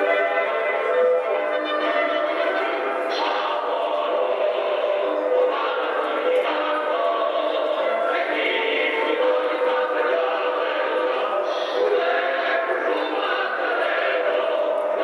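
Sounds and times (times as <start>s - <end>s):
group of voices singing: 0.0s - 15.0s.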